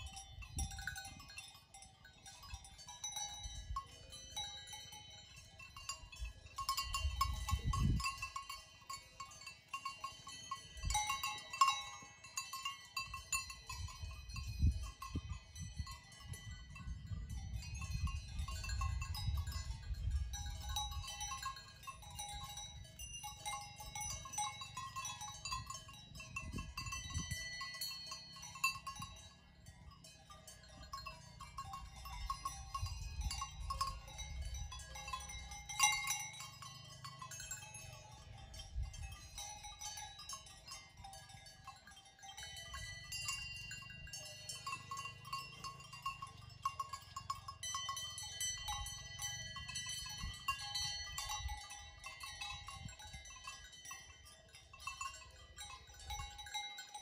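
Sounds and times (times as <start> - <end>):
livestock bells clanking: 0.0 - 57.0.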